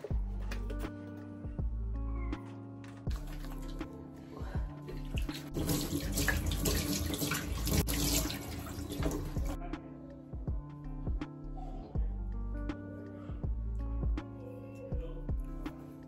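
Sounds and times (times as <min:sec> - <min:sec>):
soft background music: 0:00.0 - 0:16.0
hands splashing water: 0:03.1 - 0:03.9, 0:04.9 - 0:09.6
tap water into metal sink: 0:05.2 - 0:09.6.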